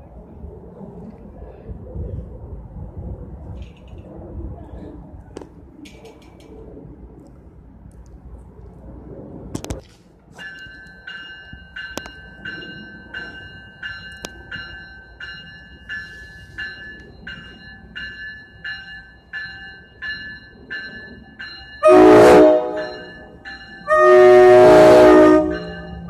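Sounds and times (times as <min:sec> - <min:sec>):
bell ringing: 0:10.4 - 0:24.2, 0:25.4 - 0:26.0
train horn blast: 0:21.8 - 0:23.1, 0:23.9 - 0:26.0.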